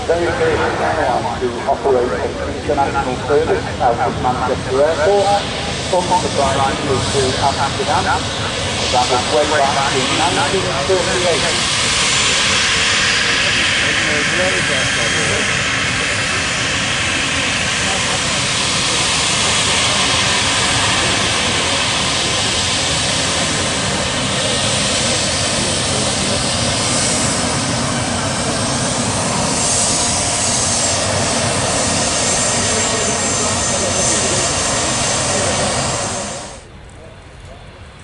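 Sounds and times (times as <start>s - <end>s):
jet engines taxiing: 0.0s - 38.0s.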